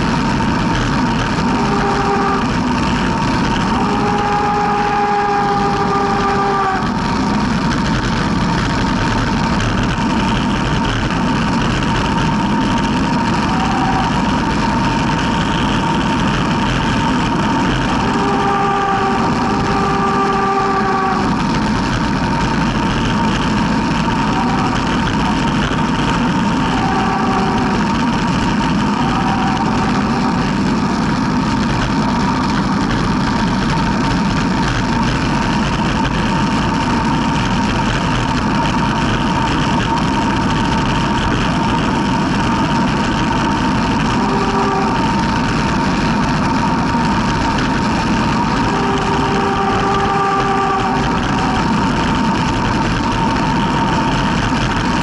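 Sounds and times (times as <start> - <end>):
tyre noise on asphalt: 0.0 - 55.0.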